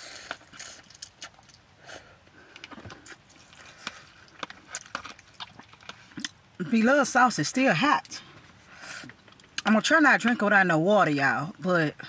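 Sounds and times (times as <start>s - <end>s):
chewing smacks and clicks: 0.3s - 1.6s, 2.5s - 6.4s.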